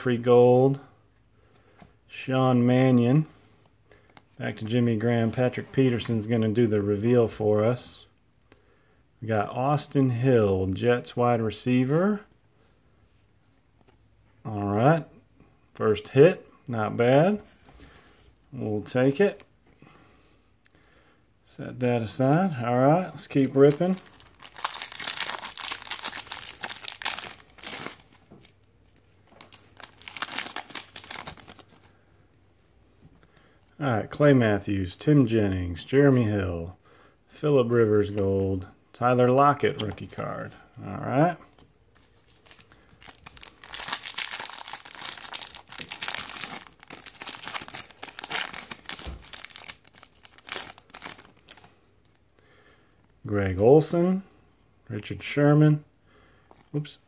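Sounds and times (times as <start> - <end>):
foil wrapper crinkling and tearing: 23.2 - 28.6, 29.3 - 31.8, 42.2 - 51.7.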